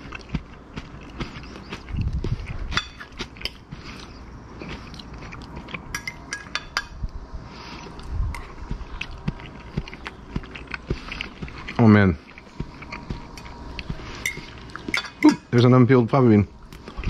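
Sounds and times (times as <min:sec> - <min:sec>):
chewing crunchy snap peas: 0:00.0 - 0:06.3, 0:07.8 - 0:15.1, 0:16.6 - 0:17.0
fork clinking on plate: 0:05.9 - 0:07.0.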